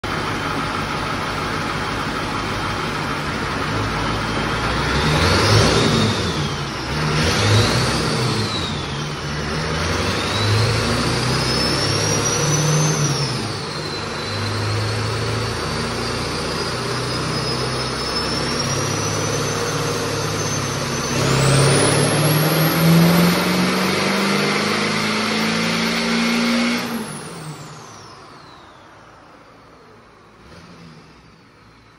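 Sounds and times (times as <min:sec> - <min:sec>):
diesel engine revving: 0:00.0 - 0:31.9
turbo whistle: 0:10.0 - 0:28.7.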